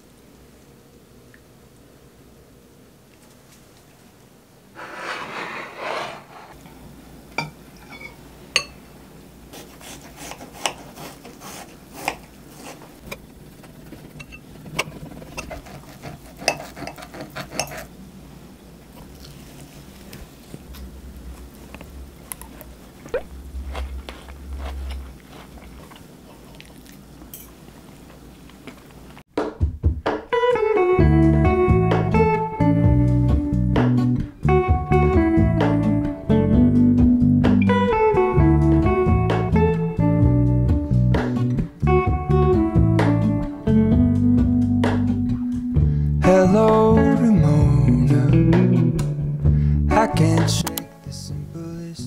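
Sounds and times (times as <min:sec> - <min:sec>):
knife and fork scraping a plate: 0:04.8 - 0:06.6, 0:07.8 - 0:08.7, 0:09.6 - 0:12.9, 0:13.9 - 0:17.9.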